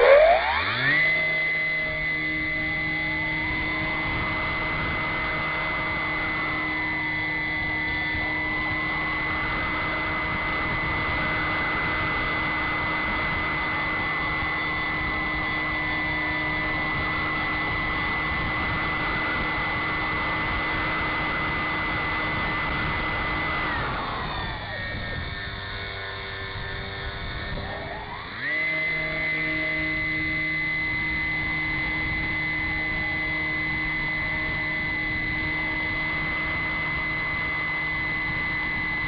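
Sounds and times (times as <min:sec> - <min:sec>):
wind rushing over microphone: 0:00.0 - 0:28.4
model airplane motor whine: 0:00.0 - 0:39.0.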